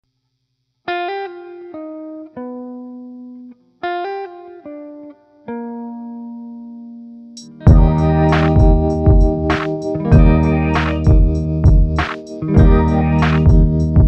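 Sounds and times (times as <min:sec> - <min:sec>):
plucked guitar notes: 0:03.9 - 0:14.0.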